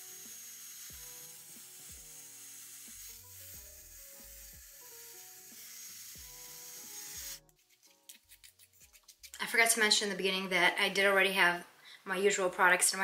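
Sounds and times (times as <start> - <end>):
hair dryer blowing: 3.2 - 7.4.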